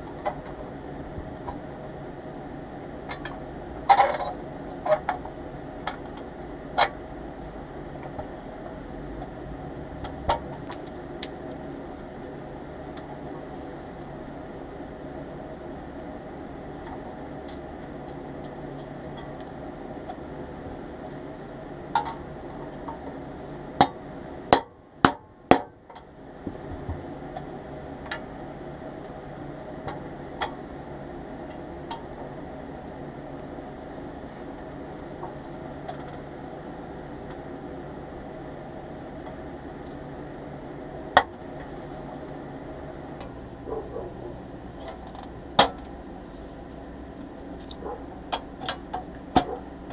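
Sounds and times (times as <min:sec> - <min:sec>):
steady background hum: 0:00.0 - 0:49.9.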